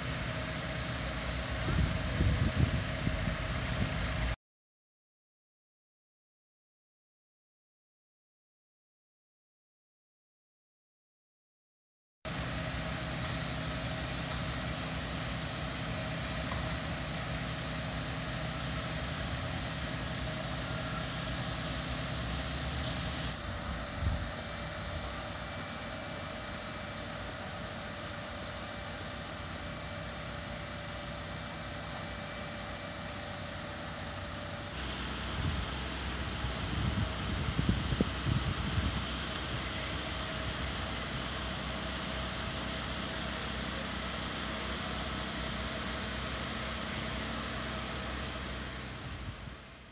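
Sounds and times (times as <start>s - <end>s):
fire engines idling: 0.0s - 4.4s, 12.3s - 49.9s.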